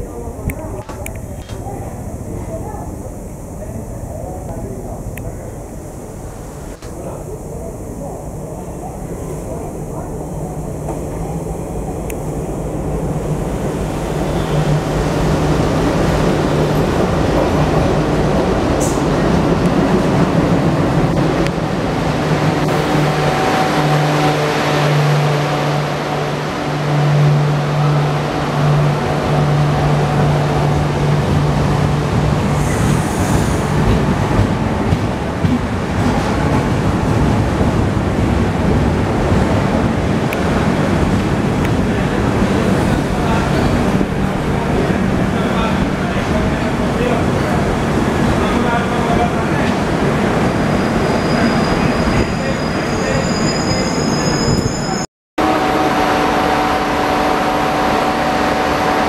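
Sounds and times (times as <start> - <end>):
diesel locomotive engine drone: 0.0 - 59.0
train wheels rumbling on rails: 9.2 - 59.0
brief high squeal: 50.8 - 55.1.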